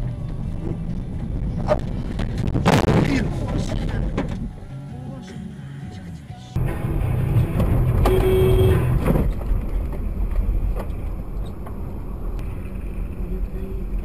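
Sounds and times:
car engine and road rumble: 0.0s - 14.0s
short steady tone: 7.9s - 9.0s.

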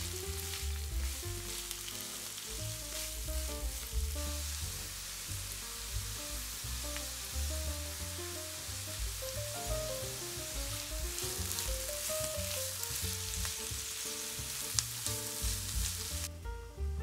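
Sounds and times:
vegetables sizzling in oil: 0.0s - 16.4s
light background music: 0.0s - 17.0s
spatula stirring in a pan: 0.5s - 6.6s, 10.6s - 16.3s.

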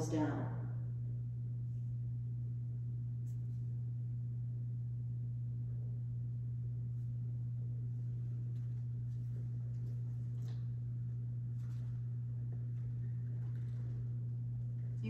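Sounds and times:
low electrical hum: 0.0s - 15.0s
faint soft rustles: 8.0s - 15.0s.

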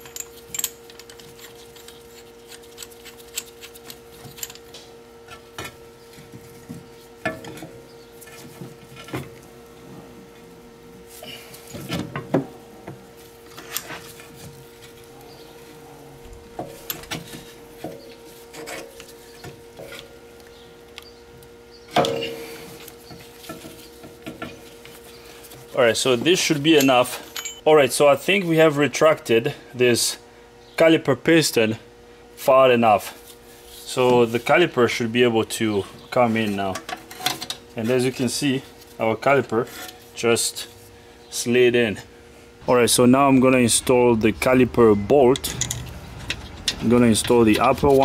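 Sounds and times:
faint steady hum: 0.0s - 48.0s
metal tool clinking and scraping: 26.4s - 27.6s.

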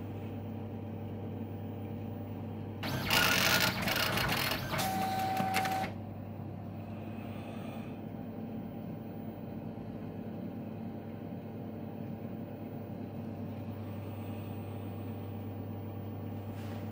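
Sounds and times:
printer clicks: 2.8s - 6.0s
printer mechanism whirring: 2.8s - 6.0s
printer low hum: 2.8s - 6.9s.

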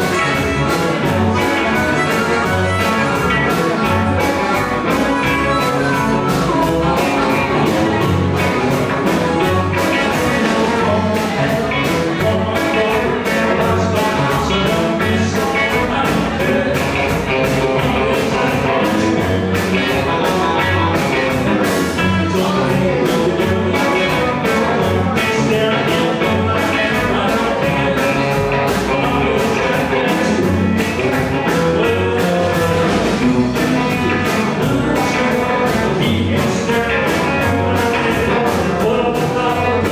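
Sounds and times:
blues band playing: 0.0s - 39.9s.

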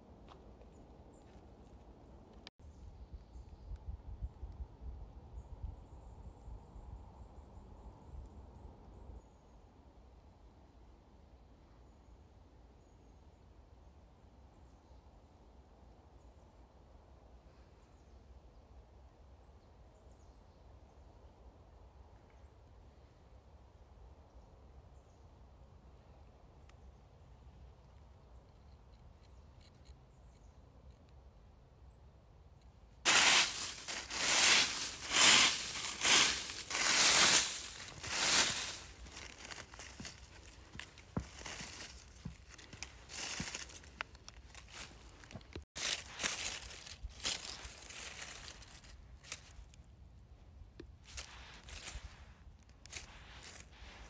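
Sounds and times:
dry leaves crunching and rustling: 33.1s - 49.8s, 51.0s - 54.0s.

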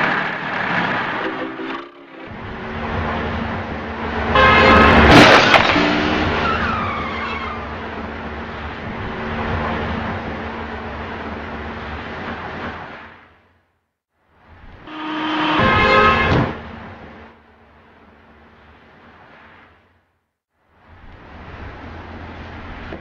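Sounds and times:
traffic rumble: 0.0s - 23.0s
loud car crash impact: 4.4s - 7.8s
tyre squeals: 6.3s - 7.7s.

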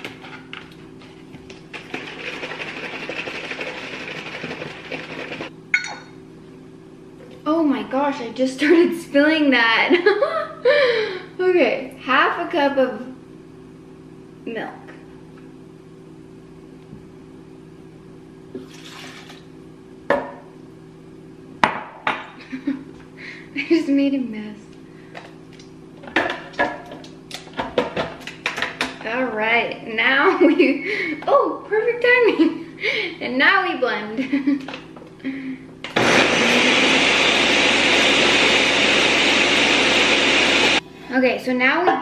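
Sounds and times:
steady low hum: 0.0s - 35.9s, 40.8s - 42.0s
liquid pouring and splashing: 18.6s - 19.5s
knocks on a countertop: 21.6s - 22.3s.

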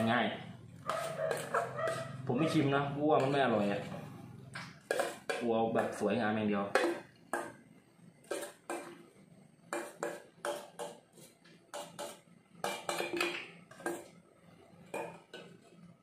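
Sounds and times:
utensil clinking on metal pot: 4.8s - 6.0s, 11.7s - 14.1s.

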